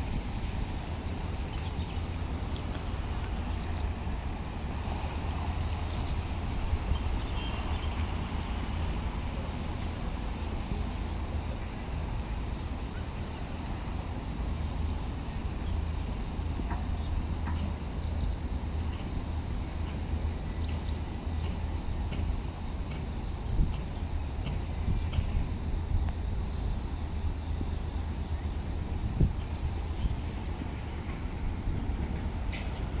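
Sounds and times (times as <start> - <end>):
wind on microphone: 23.4 - 33.0.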